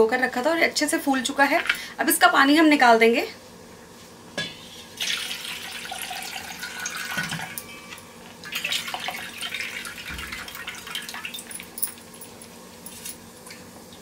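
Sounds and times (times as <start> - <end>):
water pouring into metal pot: 5.0 - 7.6, 8.4 - 11.8.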